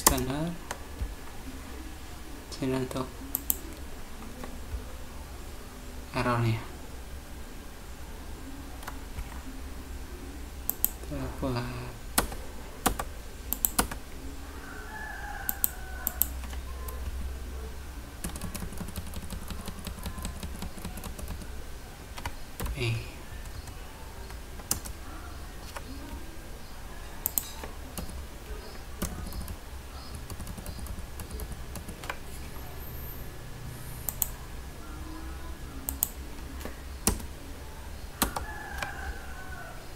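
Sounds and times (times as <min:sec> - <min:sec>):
computer keyboard typing: 0:00.0 - 0:01.2, 0:02.7 - 0:04.9, 0:08.8 - 0:09.5, 0:10.6 - 0:11.1, 0:12.1 - 0:14.2, 0:15.5 - 0:17.2, 0:18.2 - 0:22.8, 0:23.4 - 0:26.2, 0:27.2 - 0:34.4, 0:35.8 - 0:37.4, 0:38.2 - 0:39.0.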